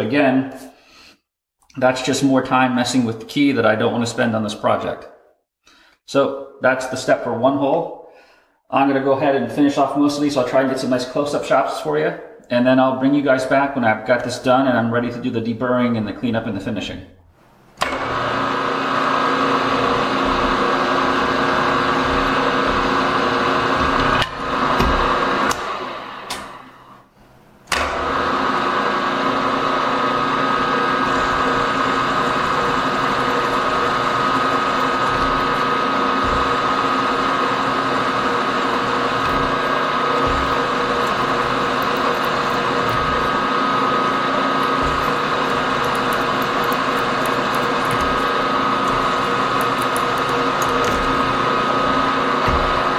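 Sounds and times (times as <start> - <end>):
drill boring into aluminium: 18.0 - 25.7, 29.5 - 52.9.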